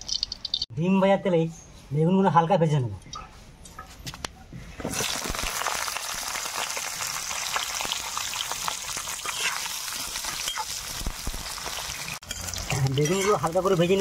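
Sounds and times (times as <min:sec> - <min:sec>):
eggplant frying in oil: 0:04.8 - 0:14.0.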